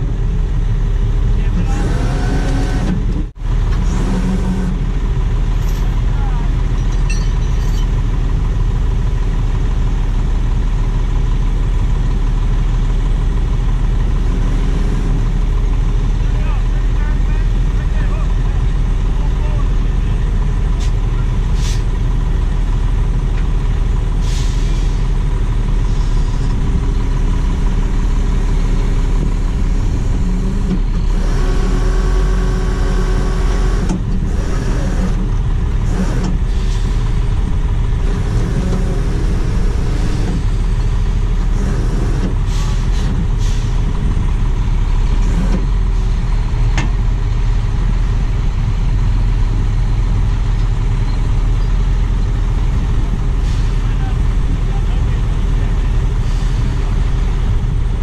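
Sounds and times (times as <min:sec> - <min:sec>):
diesel engine running under load: 0:00.0 - 0:58.0
hydraulic winch whine: 0:01.6 - 0:04.9, 0:29.2 - 0:37.1, 0:38.0 - 0:40.8, 0:41.4 - 0:43.6.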